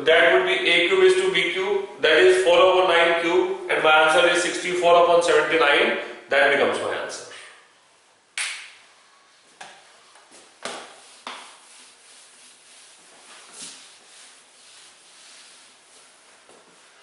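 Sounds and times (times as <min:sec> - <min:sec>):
duster wiping whiteboard: 0:09.9 - 0:17.0.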